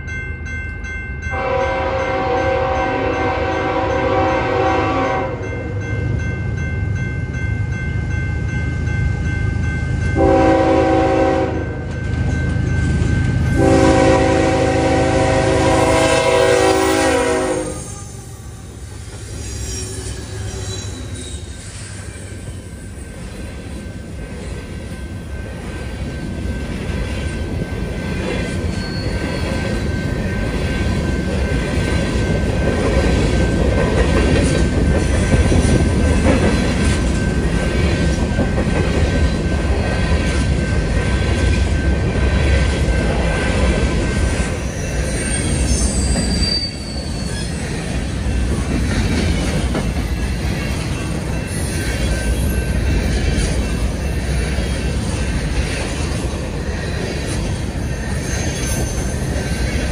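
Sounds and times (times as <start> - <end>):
locomotive horn blasts: 1.3 - 5.4, 10.2 - 11.8, 13.6 - 17.9.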